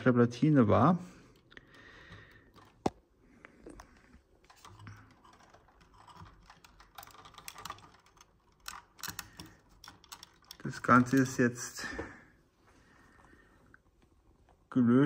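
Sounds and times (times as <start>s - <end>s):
light clicks and rustling: 1.3s - 12.3s.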